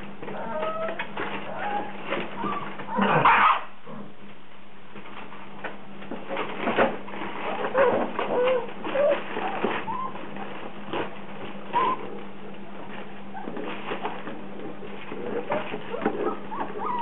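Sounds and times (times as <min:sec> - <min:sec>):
puppies whimpering and squeaking: 0:00.2 - 0:03.7, 0:07.2 - 0:11.0, 0:11.6 - 0:14.2, 0:15.0 - 0:17.0.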